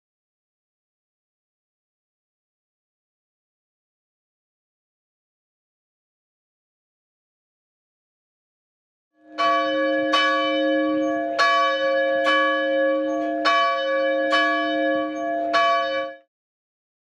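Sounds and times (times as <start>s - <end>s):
church bell ringing: 9.2s - 16.3s.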